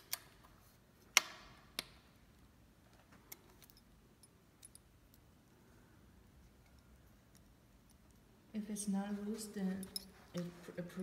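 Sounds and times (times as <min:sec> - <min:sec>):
hex keys clinking: 0:09.6 - 0:10.4.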